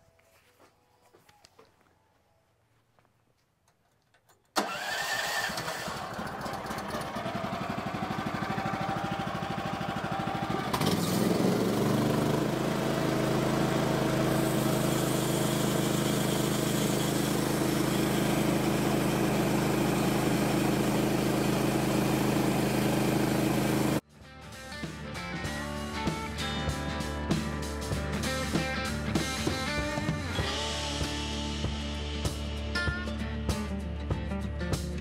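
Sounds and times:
sawmill engine running: 4.6 - 24.0.

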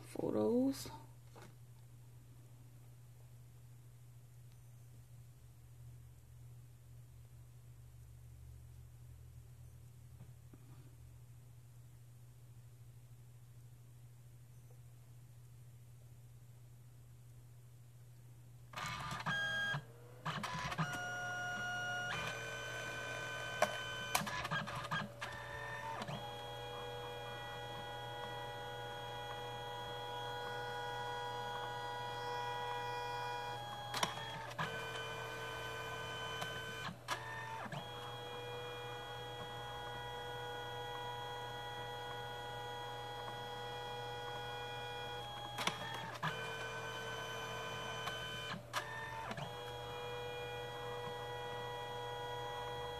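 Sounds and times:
printer feed motor whining: 18.8 - 52.9
printer clicks: 33.6 - 38.6, 45.1 - 51.4.

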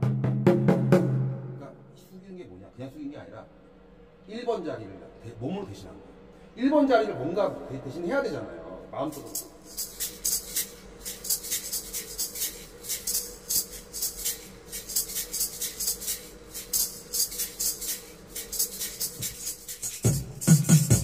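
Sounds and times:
maracas shaken in rhythm: 9.1 - 21.0.

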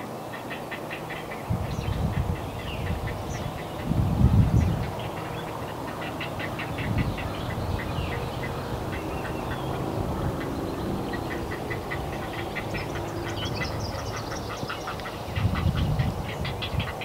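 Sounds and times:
heron nestlings calling: 4.6 - 17.0.

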